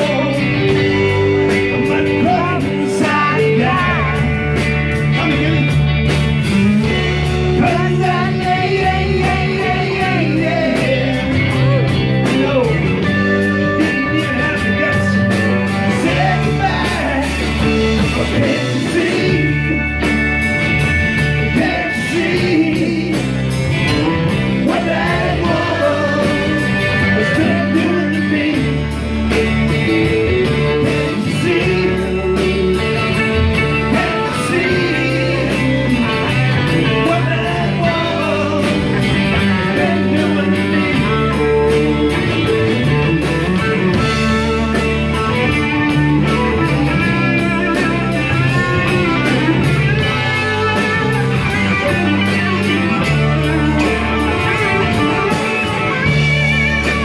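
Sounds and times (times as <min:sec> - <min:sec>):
man singing lead vocal: 0:00.0 - 0:20.2, 0:21.2 - 0:45.0
live rock band playing: 0:00.0 - 0:57.0.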